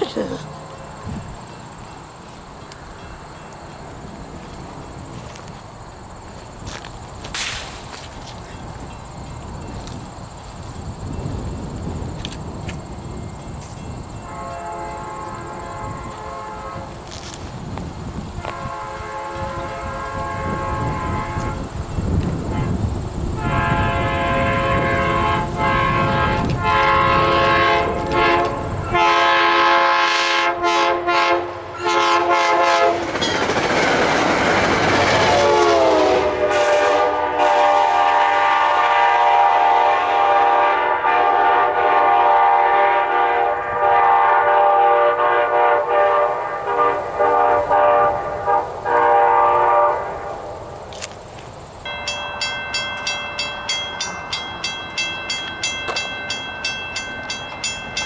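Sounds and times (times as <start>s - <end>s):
train wheel and rail noise: 0.0s - 58.0s
train horn blasts: 14.2s - 17.4s, 18.4s - 21.7s, 22.4s - 33.2s, 35.0s - 50.5s.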